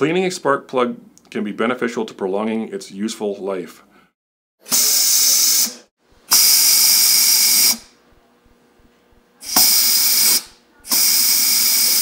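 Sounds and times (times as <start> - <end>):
compressed air blast hiss: 4.7 - 7.8, 9.4 - 12.0.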